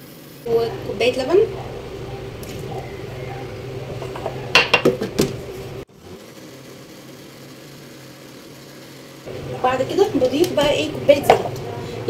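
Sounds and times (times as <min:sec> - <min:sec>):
low steady hum: 0:00.5 - 0:05.9
clicks and knocks of lid: 0:04.0 - 0:05.4.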